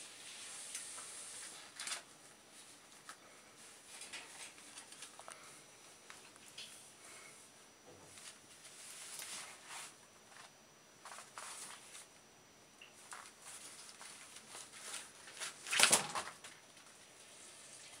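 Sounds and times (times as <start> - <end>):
ferret rustling paper leaflets: 0.3 - 5.4, 8.1 - 12.1, 13.0 - 17.0.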